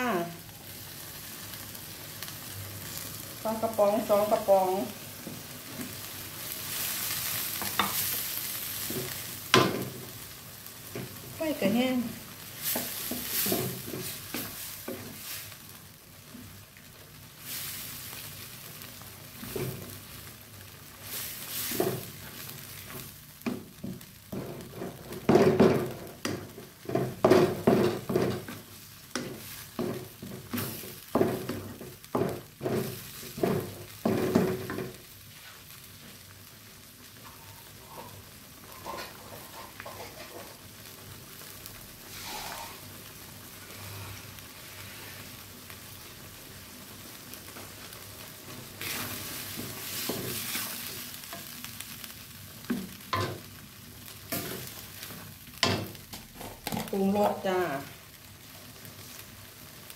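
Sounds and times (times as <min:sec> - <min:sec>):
food sizzling in wok: 0:00.0 - 0:59.9
spatula scraping wok: 0:03.4 - 0:15.8, 0:19.2 - 0:35.8, 0:37.2 - 0:40.7, 0:41.3 - 0:45.8, 0:47.5 - 0:57.5.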